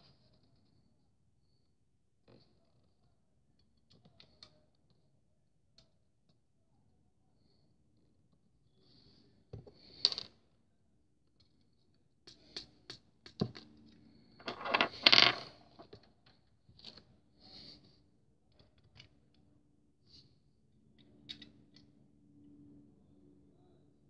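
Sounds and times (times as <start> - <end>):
plastic scraping and rubbing: 14.4 - 15.8.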